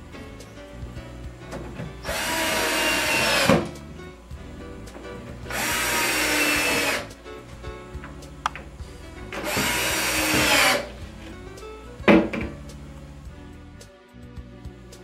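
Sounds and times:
background music: 0.0 - 15.0
cordless drill driving screws: 2.0 - 3.7, 5.5 - 7.1, 9.4 - 11.0.

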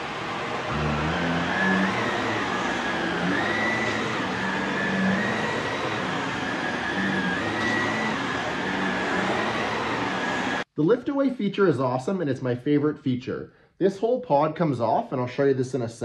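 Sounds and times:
vacuum cleaner on carpet: 0.0 - 10.7.

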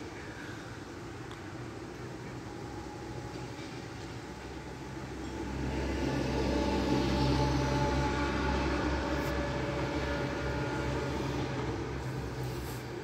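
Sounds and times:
city traffic: 0.0 - 13.0
faint hum: 0.0 - 13.0.

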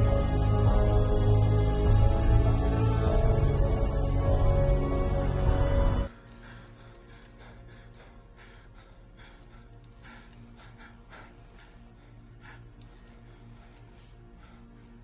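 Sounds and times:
steady low hum: 0.0 - 15.0
man breathing and gasping: 6.1 - 15.0.

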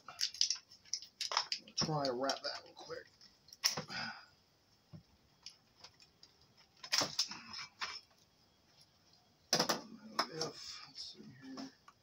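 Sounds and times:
plastic connectors clicking: 0.2 - 2.7.

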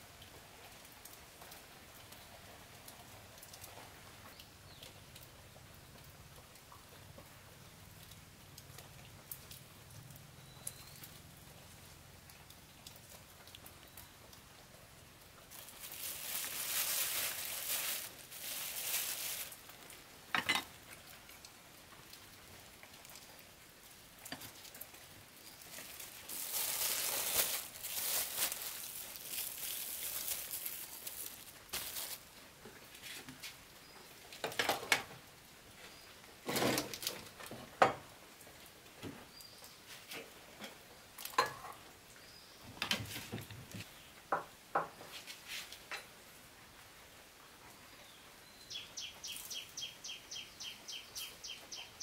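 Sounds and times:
plastic bag rustling: 15.4 - 20.7, 24.2 - 33.6.

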